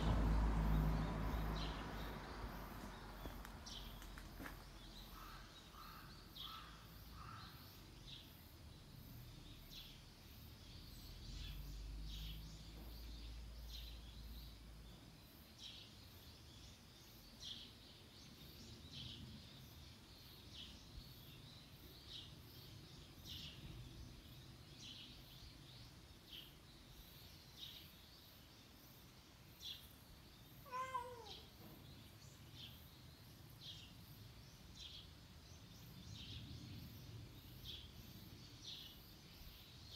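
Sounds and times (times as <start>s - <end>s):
cat meowing: 30.6s - 31.6s.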